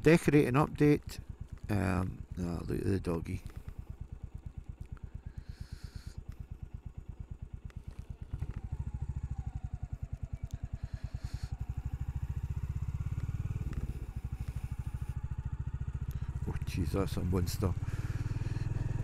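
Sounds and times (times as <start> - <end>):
motorcycle engine thumping: 6.2 - 10.8, 11.6 - 19.0.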